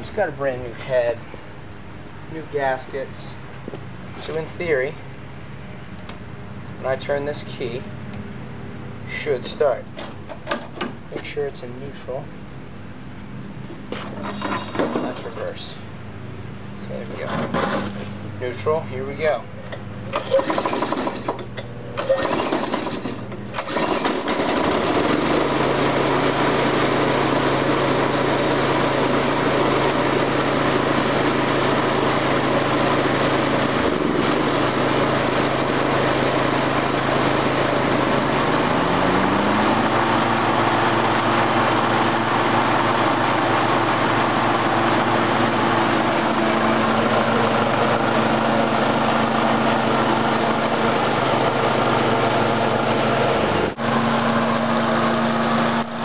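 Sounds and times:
mower engine starting and running: 0:00.0 - 0:56.0
engine revving up: 0:22.0 - 0:56.0.

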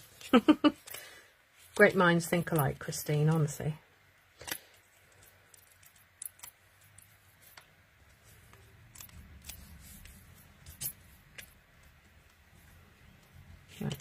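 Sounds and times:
paper and card rustling: 0:04.4 - 0:12.8.

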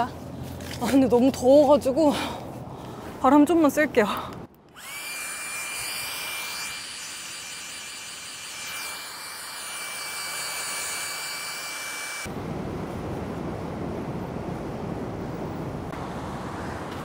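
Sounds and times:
air pump motor whining: 0:04.7 - 0:12.3.

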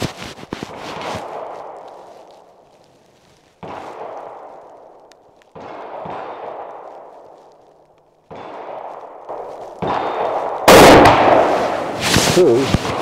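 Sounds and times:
rifle shot with long echo: 0:01.2 - 0:02.6, 0:03.6 - 0:12.0.

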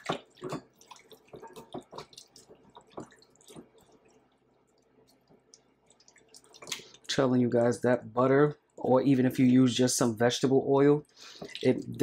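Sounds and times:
wet meat squelching and slapping: 0:00.0 - 0:07.1.

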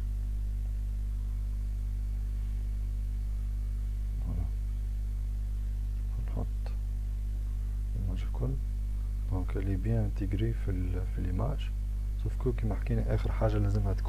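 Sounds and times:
electrical mains hum: 0:00.0 - 0:14.0
quiet voice murmurs: 0:04.2 - 0:04.6.

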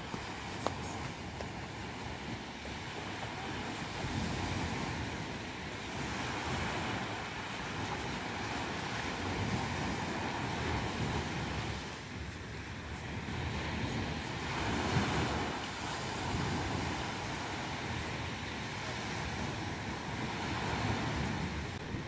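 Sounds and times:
surf washing up a beach: 0:00.0 - 0:22.0.

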